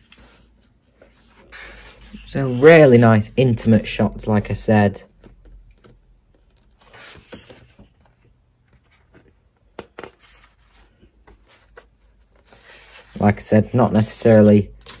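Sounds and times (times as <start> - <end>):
book pages turning: 5.1 - 15.0.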